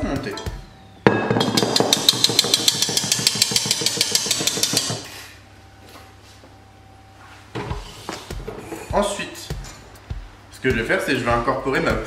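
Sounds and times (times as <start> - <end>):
whisk clinking against metal bowl: 1.4 - 5.0.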